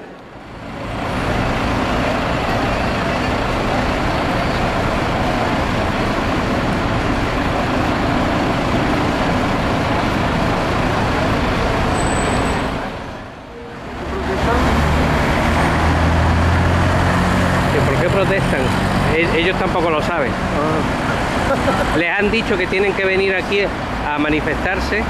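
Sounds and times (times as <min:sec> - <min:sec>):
bus engine running: 0:00.0 - 0:25.0
street traffic: 0:00.0 - 0:25.0.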